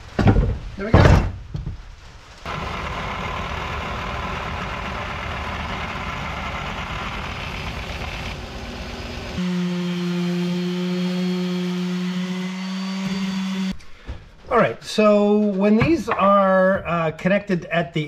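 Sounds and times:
orbital sander humming: 2.5s - 13.7s
belt sander sanding wood: 2.5s - 13.8s.

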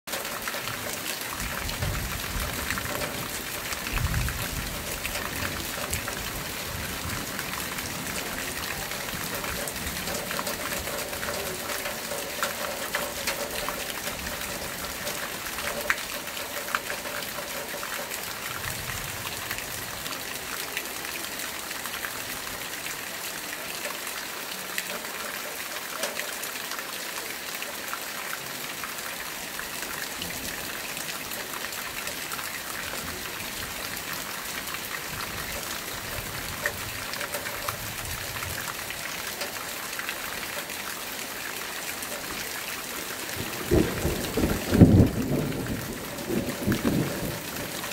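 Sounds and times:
raindrop taps: 0.1s - 19.0s, 33.2s - 39.6s
steady rain hiss: 0.1s - 47.9s.

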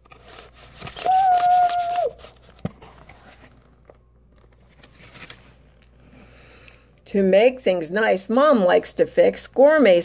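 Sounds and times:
cardboard book clicks and rustling: 0.0s - 5.5s.

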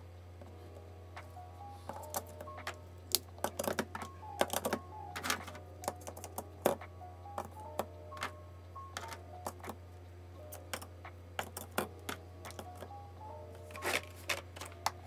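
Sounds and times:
soft background music: 0.0s - 15.0s
plastic highlighters clattering: 1.9s - 6.8s, 13.6s - 15.0s.

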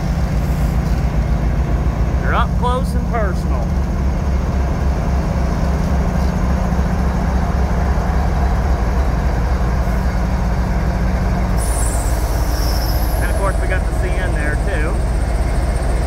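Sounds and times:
diesel locomotive rumbling past: 0.0s - 16.0s
high-pitched squeal: 11.6s - 14.7s.

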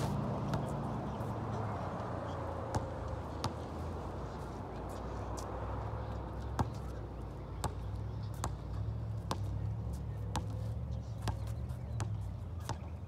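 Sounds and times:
basketball bouncing on concrete: 0.4s - 1.2s, 2.6s - 3.8s, 6.4s - 13.0s.

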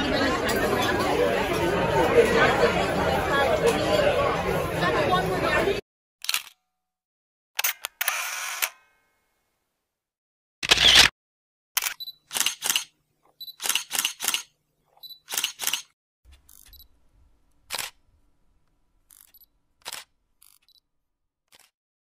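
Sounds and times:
camera shutter clicks: 6.2s - 6.6s, 7.6s - 8.8s, 10.6s - 11.1s, 11.8s - 12.9s, 13.6s - 14.5s, 15.3s - 15.9s, 17.7s - 18.0s, 19.2s - 20.7s.

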